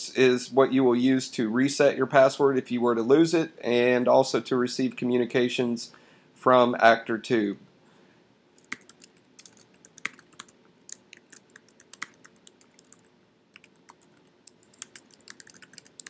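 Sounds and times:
computer keyboard typing: 0:08.6 - 0:16.0.

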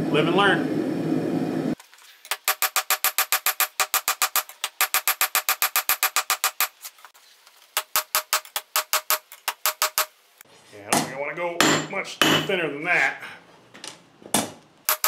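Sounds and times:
hammer striking anvil: 0:10.9 - 0:12.5.

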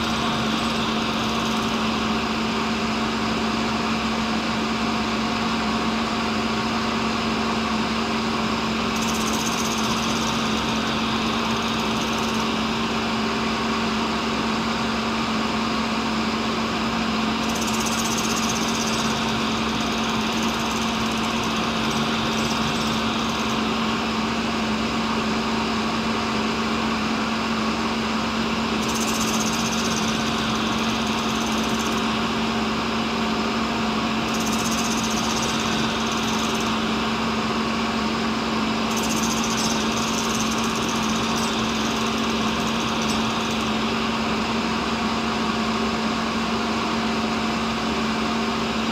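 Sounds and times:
grinder motor humming: 0:00.0 - 0:02.4, 0:09.0 - 0:12.9, 0:17.4 - 0:24.1, 0:28.7 - 0:32.6, 0:34.1 - 0:37.4, 0:38.8 - 0:44.4
grinding hiss: 0:38.9 - 0:43.9.

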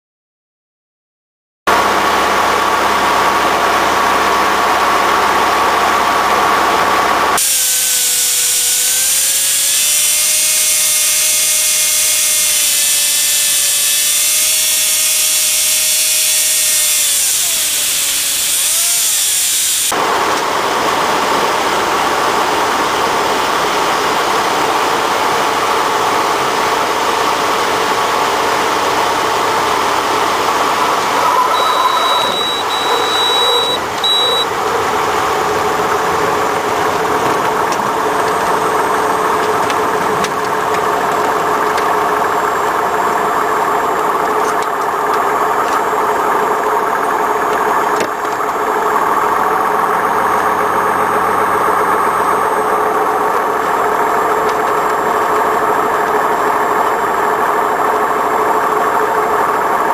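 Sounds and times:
plane engine and propeller drone: 0:01.7 - 0:59.9
hiss: 0:07.4 - 0:19.9
steady whining tone: 0:27.8 - 0:59.9.

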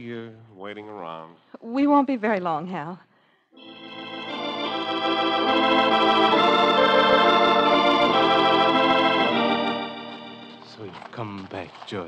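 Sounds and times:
organ chords: 0:03.6 - 0:11.4.

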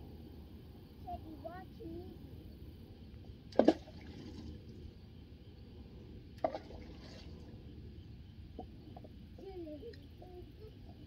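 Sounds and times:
low background rumble: 0:00.0 - 0:11.0
water splashes: 0:03.5 - 0:04.7, 0:06.4 - 0:07.5.

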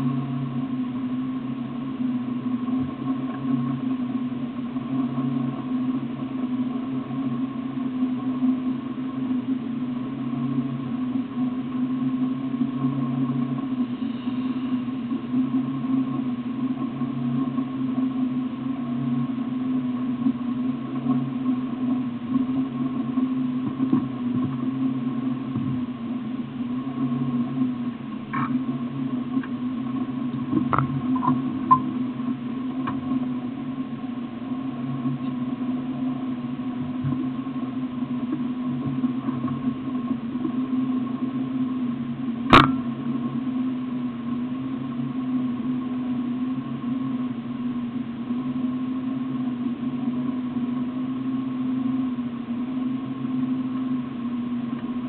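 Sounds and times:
steady low hum: 0:00.0 - 0:55.0
sharp click: 0:42.5 - 0:42.9.

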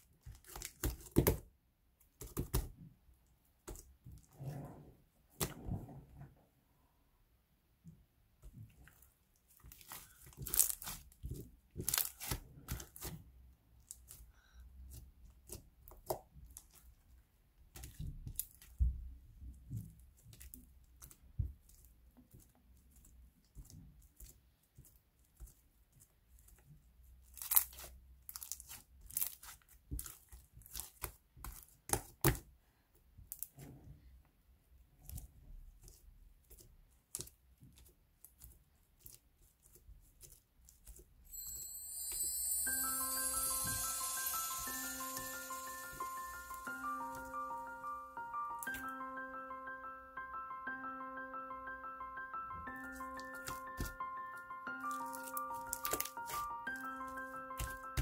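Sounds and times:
slime popping and crackling: 0:09.6 - 0:13.2, 0:54.9 - 0:58.0.

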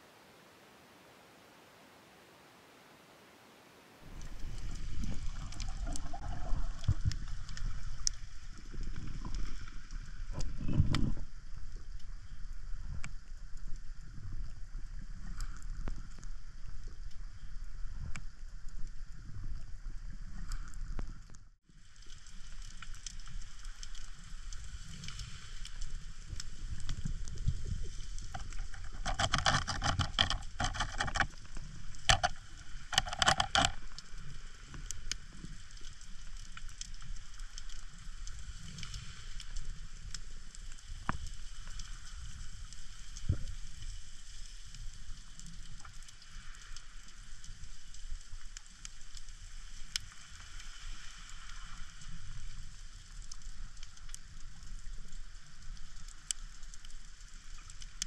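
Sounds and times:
underwater crackle of fine ticks: 0:04.0 - 0:58.0
underwater clicks and knocks: 0:04.2 - 0:08.2, 0:10.3 - 0:11.2, 0:27.4 - 0:34.1.

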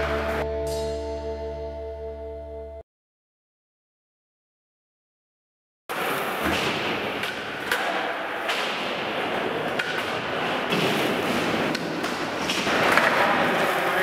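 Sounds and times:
skateboards rolling on concrete: 0:09.1 - 0:14.0
skateboards knocking on ground: 0:09.6 - 0:13.6.

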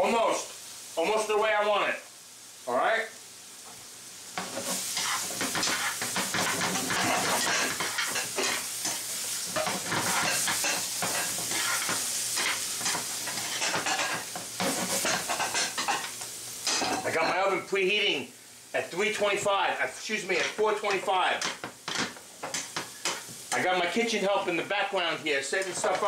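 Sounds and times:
vegetables sizzling in a frying pan: 0:00.0 - 0:26.0
metal utensils clinking against pan: 0:04.4 - 0:17.1, 0:20.4 - 0:23.7, 0:25.6 - 0:26.0.

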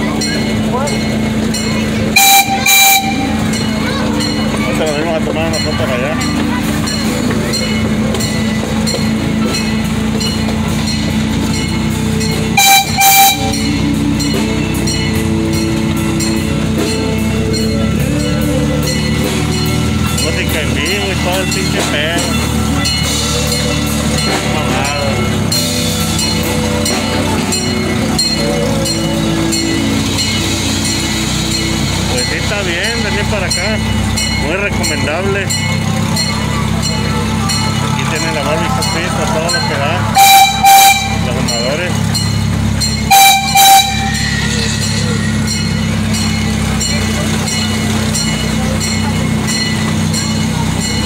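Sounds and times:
miniature train rumbling on track: 0:00.0 - 0:51.0
train horn toots: 0:02.1 - 0:03.7, 0:12.5 - 0:16.4, 0:40.1 - 0:41.8, 0:43.0 - 0:45.3.

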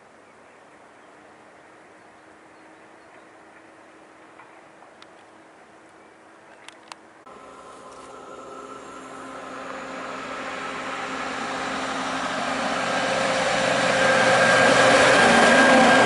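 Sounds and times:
diesel locomotive engine humming: 0:00.0 - 0:16.0.

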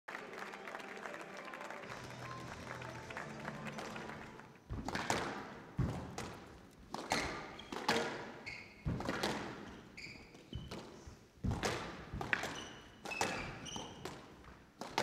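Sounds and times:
squash ball hitting rackets and walls: 0:04.7 - 0:15.0
shoes squeaking on court floor: 0:05.8 - 0:15.0.

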